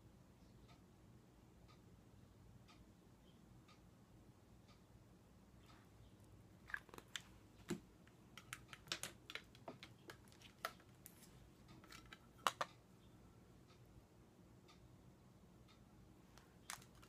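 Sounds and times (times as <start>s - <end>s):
plastic cases clicking and tapping: 8.4s - 11.2s, 11.8s - 12.7s, 16.7s - 17.0s.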